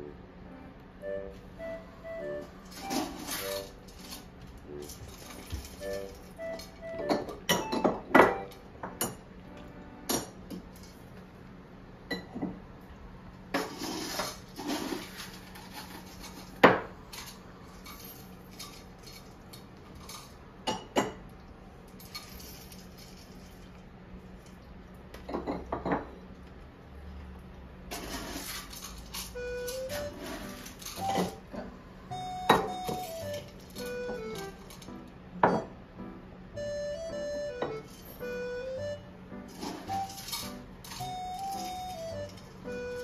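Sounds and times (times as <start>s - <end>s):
dishes and utensils clinking: 2.7s - 9.2s, 12.1s - 12.6s, 25.2s - 26.2s, 27.9s - 31.7s, 32.5s - 35.8s, 39.5s - 42.6s.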